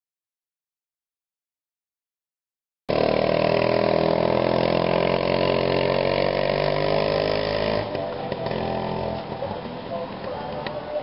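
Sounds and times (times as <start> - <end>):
small motorcycle engine running: 2.9 - 10.7.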